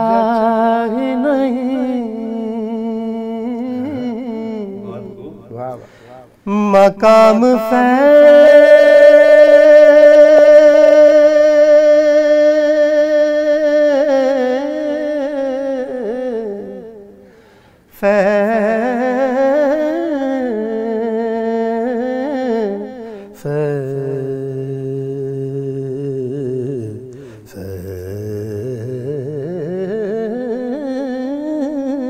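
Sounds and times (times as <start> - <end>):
man singing wavering runs: 0.0 - 5.7.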